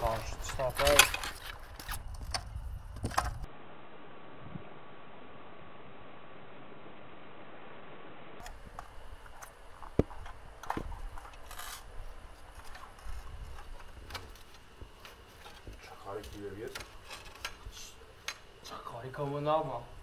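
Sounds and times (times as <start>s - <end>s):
person speaking: 0.0s - 1.4s.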